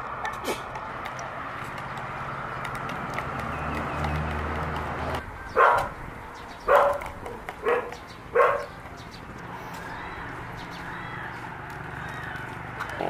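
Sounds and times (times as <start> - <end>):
dog barking: 5.6 - 5.9, 6.7 - 8.8.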